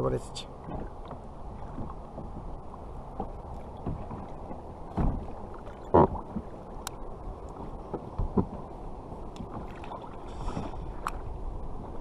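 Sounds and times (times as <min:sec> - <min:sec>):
water around a kayak: 0:00.0 - 0:12.0
wind buffeting the microphone: 0:00.0 - 0:12.0
gear thumping on a hull: 0:00.6 - 0:06.4, 0:07.6 - 0:08.7.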